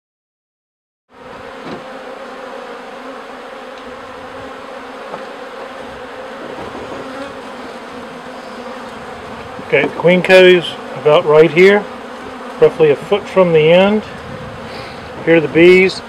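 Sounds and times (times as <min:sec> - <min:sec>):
bees buzzing: 0:01.1 - 0:16.0.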